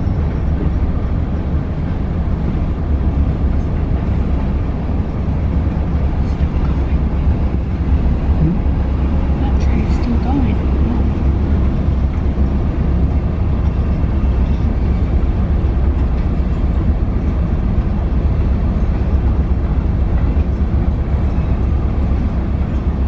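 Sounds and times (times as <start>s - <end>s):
train wheels rumbling on rail: 0.0s - 23.0s.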